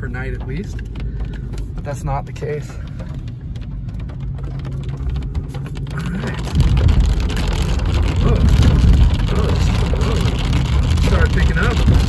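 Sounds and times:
rain on windshield: 0.0s - 12.0s
road and engine rumble: 0.0s - 12.0s.

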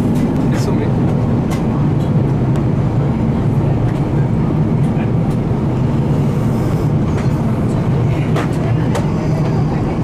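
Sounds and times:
aircraft cabin rumble: 0.0s - 10.0s.

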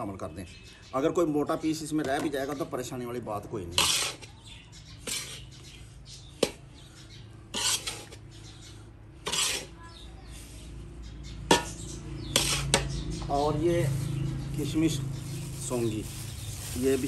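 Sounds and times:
metal spatula scraping iron wok: 3.7s - 4.4s, 5.0s - 5.5s, 7.5s - 8.3s, 9.2s - 9.8s, 11.5s - 12.9s.

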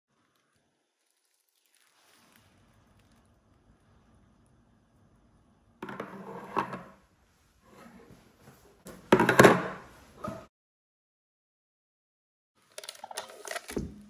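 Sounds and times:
items knocking on countertop: 8.9s - 10.4s.

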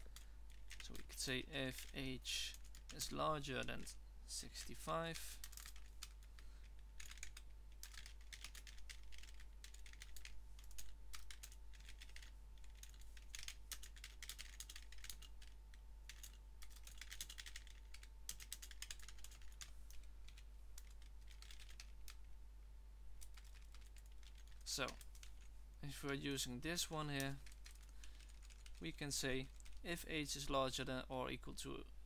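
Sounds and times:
typing on computer keyboard: 0.0s - 3.2s, 5.4s - 22.3s, 23.2s - 25.5s, 27.2s - 28.8s, 29.4s - 29.8s.

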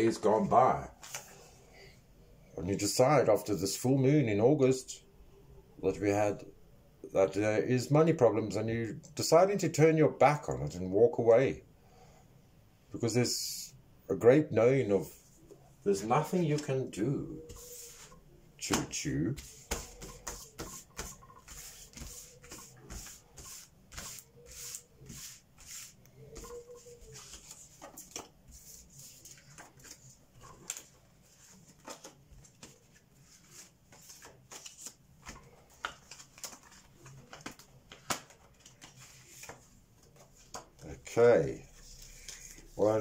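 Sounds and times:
cards swishing on a table: 1.0s - 1.3s, 17.5s - 40.8s.

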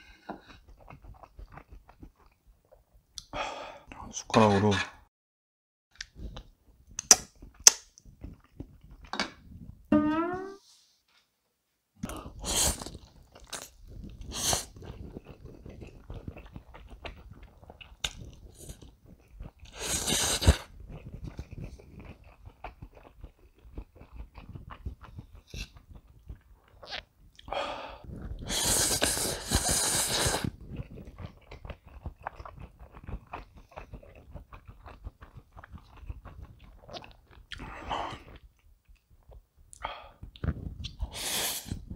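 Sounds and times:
wet chewing and smacking: 0.2s - 3.3s, 6.0s - 9.1s, 12.0s - 41.1s
loud noodle slurps: 12.4s - 18.9s, 19.6s - 21.8s, 28.3s - 31.2s, 40.8s - 41.9s.

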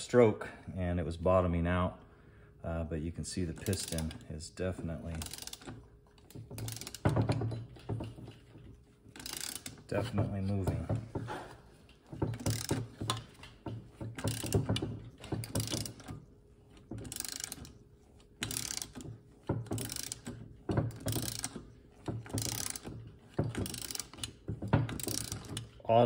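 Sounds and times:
socket ratchet clicking: 3.6s - 4.2s, 5.1s - 7.5s, 9.1s - 9.9s, 12.3s - 13.5s, 14.1s - 16.3s, 17.0s - 17.8s, 18.4s - 25.8s.

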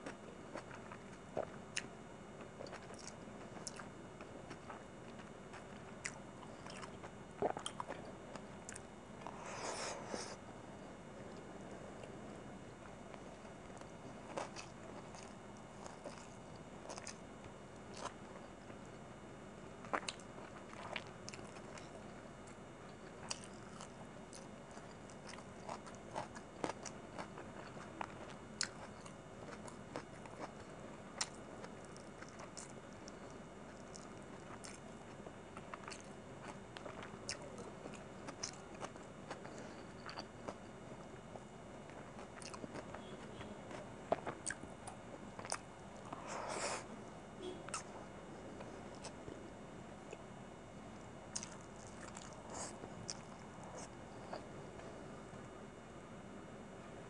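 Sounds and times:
chewing and mouth smacks: 19.9s - 34.8s, 41.9s - 46.2s, 51.3s - 54.5s.

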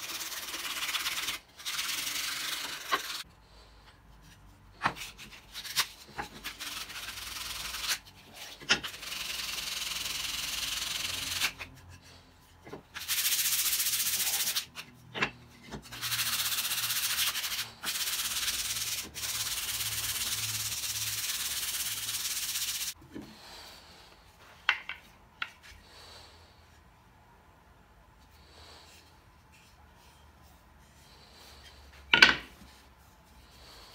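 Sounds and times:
sandpaper rubbing on wood: 0.0s - 3.2s, 5.2s - 11.7s, 13.0s - 14.7s, 15.8s - 23.0s.

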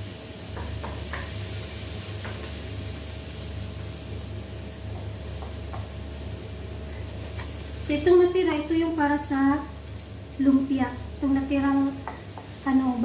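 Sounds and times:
garlic and onion sizzling in oil: 0.0s - 13.0s
wooden spoon tapping pan: 0.5s - 1.4s, 2.2s - 2.6s, 4.9s - 6.0s, 11.9s - 12.6s.

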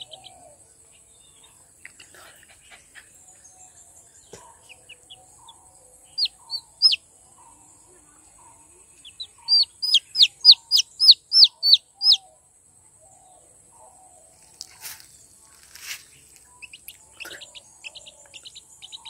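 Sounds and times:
chicks peeping: 0.0s - 3.3s, 4.3s - 12.2s, 15.7s - 19.0s.

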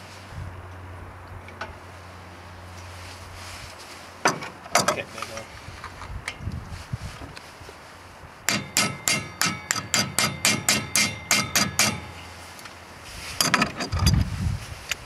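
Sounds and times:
hammer striking metal: 8.5s - 12.2s.

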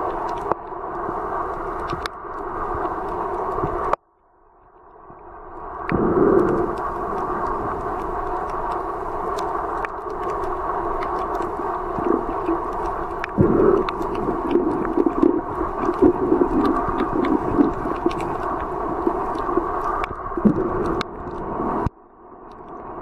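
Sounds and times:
crackling clicks: 0.0s - 4.0s, 5.8s - 22.9s
muffled underwater rush: 0.0s - 4.0s, 5.1s - 23.0s
low irregular bursts: 5.9s - 21.9s.

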